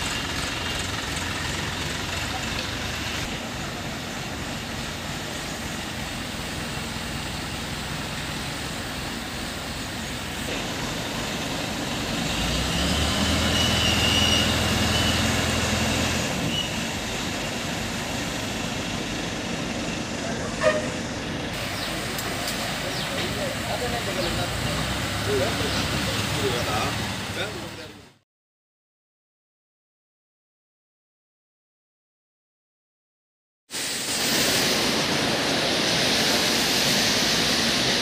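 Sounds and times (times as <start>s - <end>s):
crane diesel engine running: 0.0s - 28.2s.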